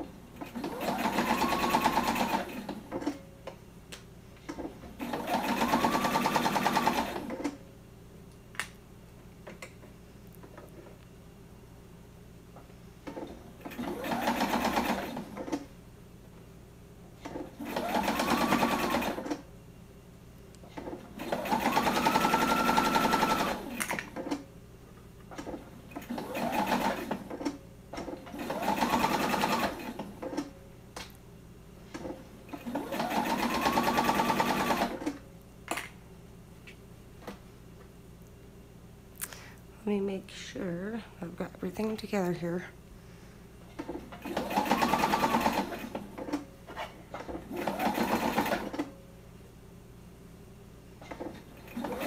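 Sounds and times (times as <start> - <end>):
sewing machine motor whine: 0.4 - 2.8, 5.0 - 7.5, 13.6 - 15.4, 17.6 - 19.4, 21.2 - 23.8, 25.9 - 27.2, 28.3 - 30.4, 32.5 - 35.2, 44.2 - 46.3.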